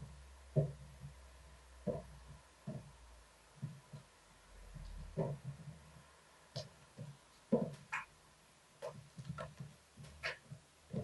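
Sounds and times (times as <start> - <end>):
cat paws thumping on wooden floor: 4.7 - 8.0.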